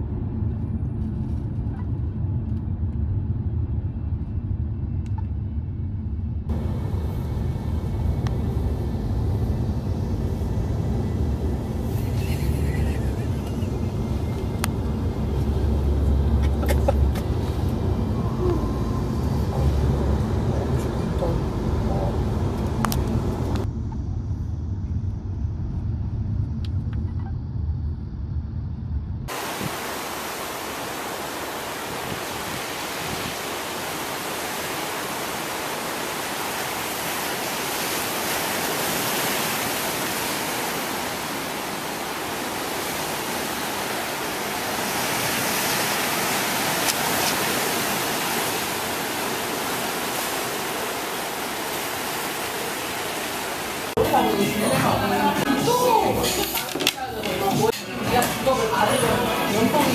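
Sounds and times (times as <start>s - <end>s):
car cabin road rumble: 0.0s - 29.9s
ocean surf breaking on rocks: 6.5s - 23.6s, 29.3s - 59.9s.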